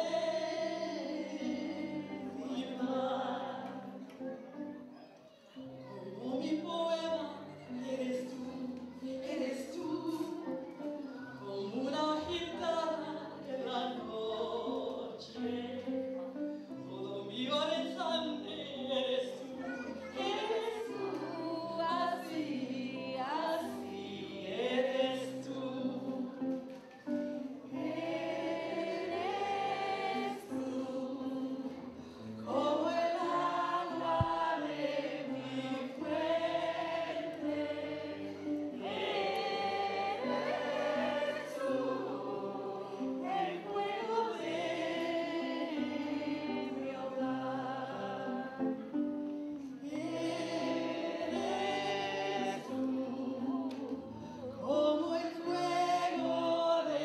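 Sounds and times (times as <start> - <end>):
voices singing together: 0.0 - 4.4, 16.9 - 57.0.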